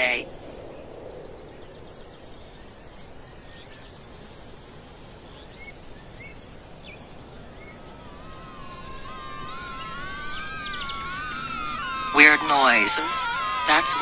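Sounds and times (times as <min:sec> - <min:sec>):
steady background hiss: 0:00.0 - 0:14.0
bird chirps: 0:01.5 - 0:14.0
wavering tones: 0:07.7 - 0:14.0.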